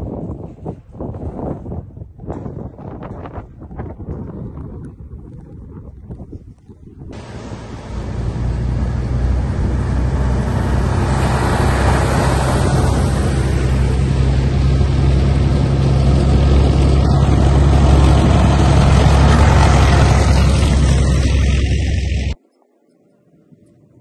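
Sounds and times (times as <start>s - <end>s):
military vehicle engine drone: 7.2s - 22.4s
road and track noise: 7.2s - 22.4s.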